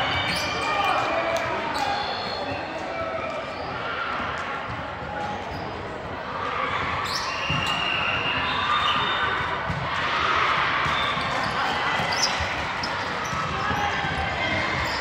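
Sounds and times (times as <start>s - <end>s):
murmur of voices: 0.0s - 15.0s
shoe squeaks: 11.0s - 13.9s, 14.7s - 15.0s.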